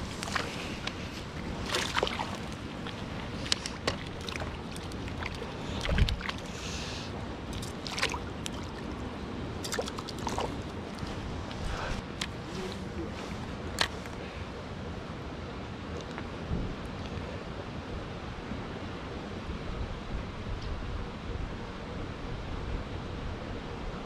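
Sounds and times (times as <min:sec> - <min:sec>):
water splashing and sloshing: 0:00.0 - 0:14.4.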